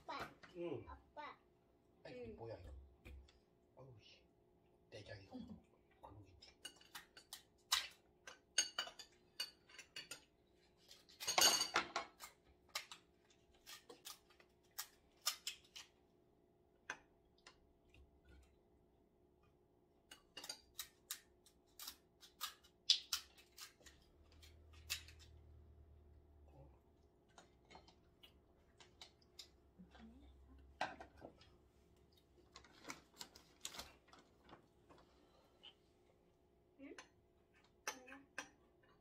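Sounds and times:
scissors cracking crab shell: 0:12.2 - 0:16.0, 0:20.4 - 0:25.4.

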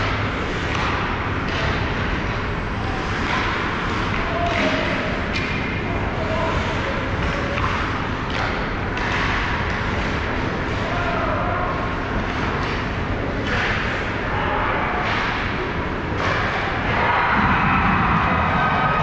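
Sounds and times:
hockey sticks and puck clacking: 0:00.0 - 0:17.2
players shouting: 0:16.3 - 0:19.0
low rumble of arena: 0:16.6 - 0:19.0.

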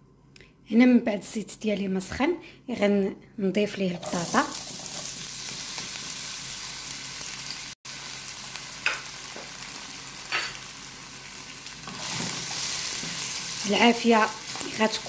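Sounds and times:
potatoes sizzling in oil: 0:03.9 - 0:15.0.

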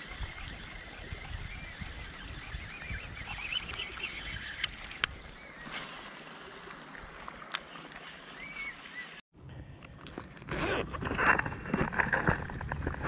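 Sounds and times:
faint chirps and clicks: 0:00.2 - 0:05.4.

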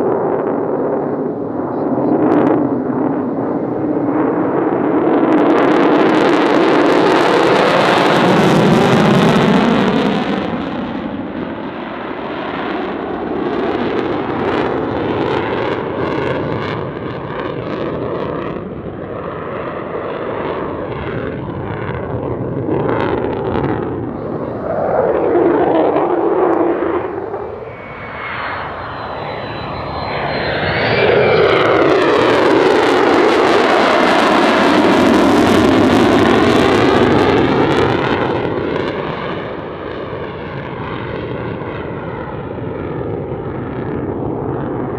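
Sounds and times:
fighter jet roaring overhead: 0:00.0 - 0:44.9.

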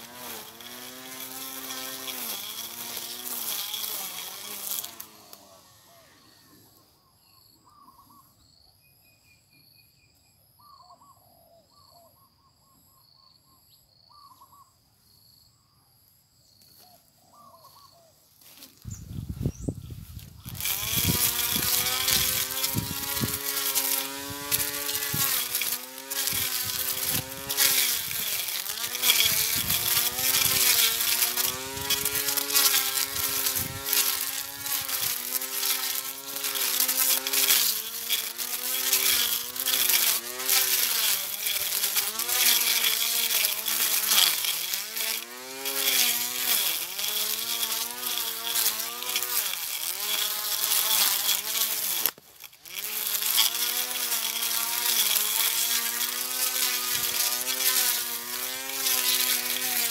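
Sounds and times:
grass cutter motor whine: 0:00.0 - 0:06.9, 0:18.4 - 0:59.9.

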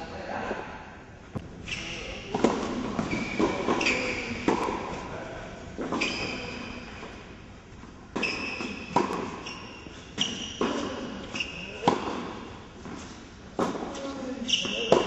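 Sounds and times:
shoe squeaks on court: 0:01.6 - 0:02.3, 0:03.0 - 0:04.7, 0:05.8 - 0:07.1, 0:08.2 - 0:11.9, 0:14.4 - 0:15.0.

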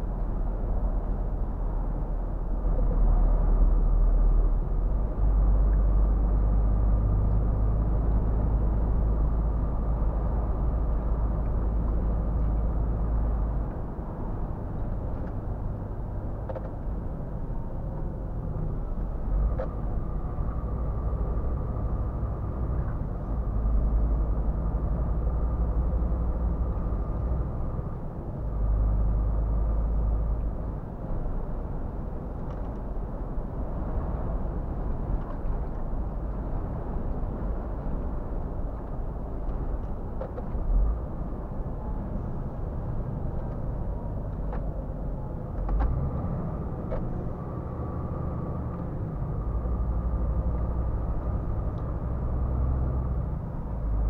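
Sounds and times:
truck engine and road rumble: 0:00.0 - 0:54.0.

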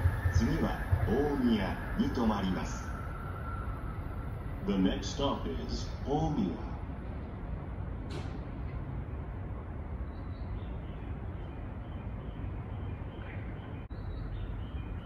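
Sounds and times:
low outdoor rumble: 0:00.0 - 0:15.0
faint bird chirps: 0:10.0 - 0:15.0.

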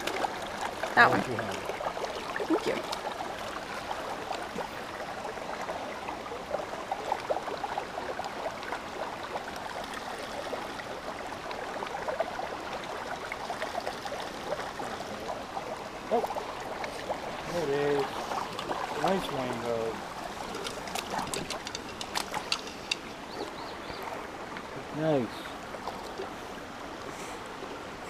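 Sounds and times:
creek babbling over rocks: 0:00.0 - 0:28.0.

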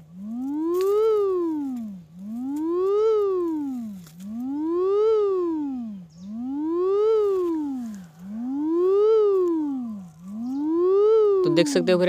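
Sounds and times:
buzzy sweep tone rising and falling: 0:00.0 - 0:12.0.

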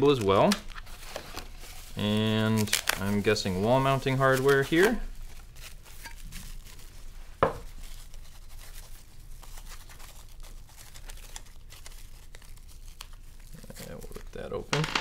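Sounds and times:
plastic bag crinkling and tearing: 0:00.0 - 0:14.7.

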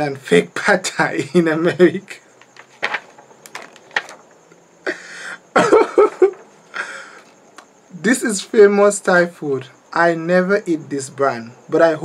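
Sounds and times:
man laughing: 0:01.1 - 0:02.2, 0:04.9 - 0:07.1.

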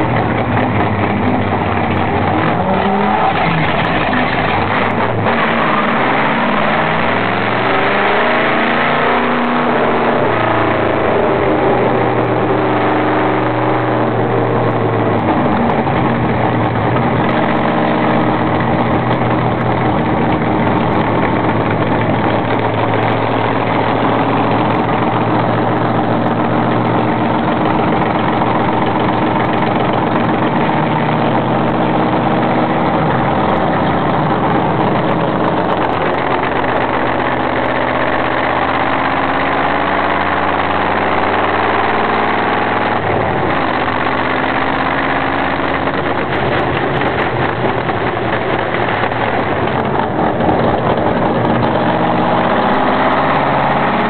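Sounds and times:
race car engine at racing speed: 0:00.0 - 0:54.0.

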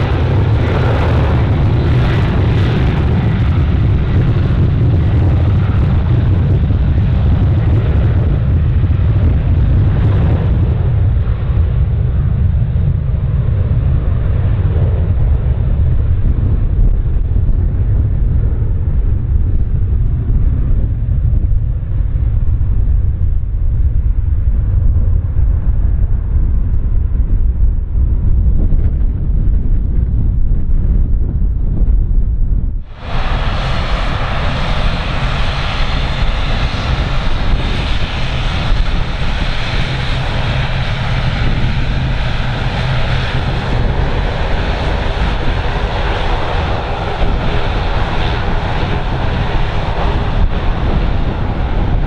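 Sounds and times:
broad rushing noise: 0:00.0 - 0:11.2, 0:32.7 - 0:52.0
wind buffeting microphone: 0:00.0 - 0:52.0.

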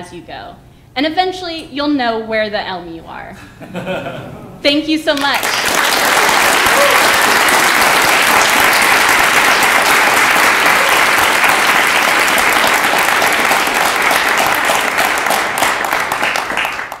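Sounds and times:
audience applauding: 0:05.2 - 0:17.0.

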